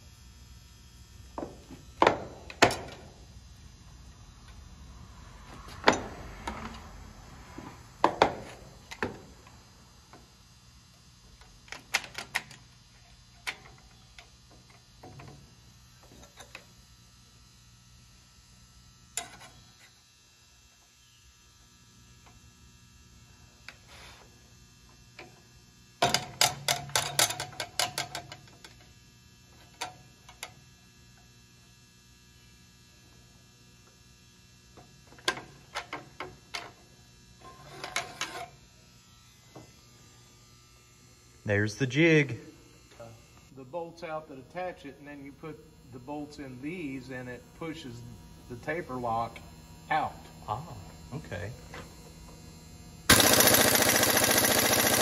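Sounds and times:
faint steady hum: 0.0s - 53.6s
clamp trigger clicking: 53.1s - 55.0s.

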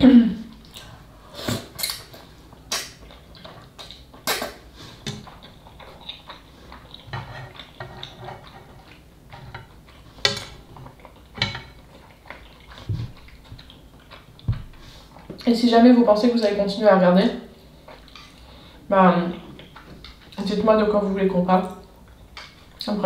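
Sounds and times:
chewing: 0.5s - 15.5s, 17.6s - 18.6s.

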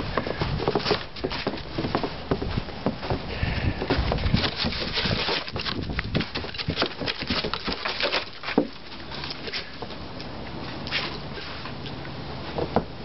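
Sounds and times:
footsteps crunching in snow: 0.0s - 9.8s.

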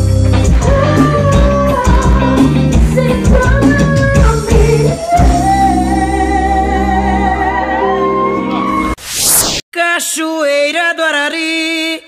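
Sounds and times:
band music with singing: 0.0s - 9.0s
drum beat: 0.5s - 5.4s.

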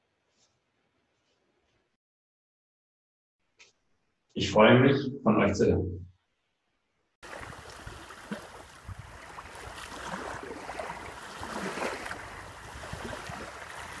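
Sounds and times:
water splashing and lapping: 7.2s - 14.0s.

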